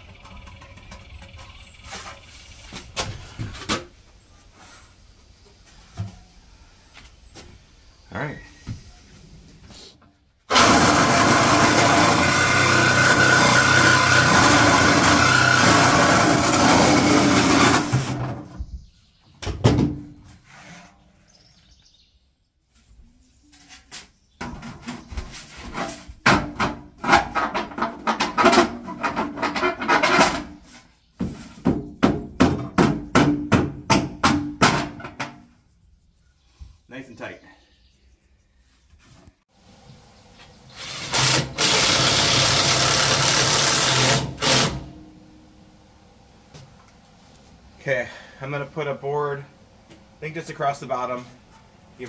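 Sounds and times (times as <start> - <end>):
jigsaw cutting steel: 10.5 - 18.2, 40.7 - 44.9.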